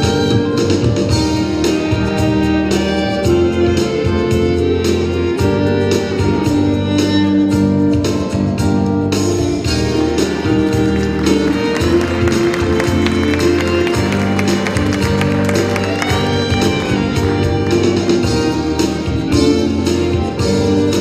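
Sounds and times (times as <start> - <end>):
regular drum beat: 0.0 - 21.0
steady bass: 0.0 - 21.0
sustained melody: 9.8 - 20.9.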